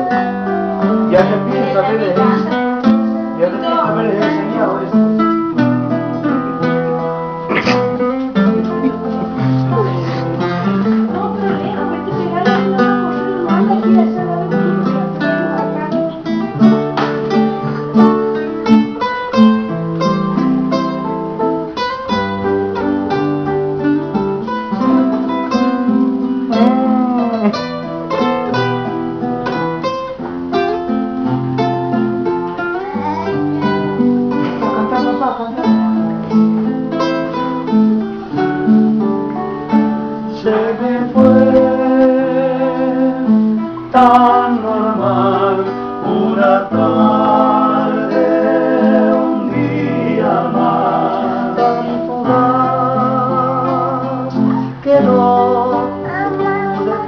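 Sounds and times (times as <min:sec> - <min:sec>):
man singing: 0:00.0 - 0:02.6, 0:03.4 - 0:05.2, 0:26.5 - 0:27.7, 0:40.2 - 0:57.0
acoustic guitars playing: 0:00.0 - 0:57.0.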